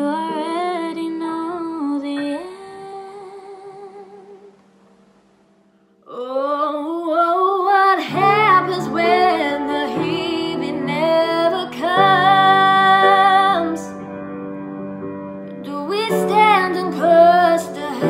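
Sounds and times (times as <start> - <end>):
piano accompaniment: 7.0 - 18.0.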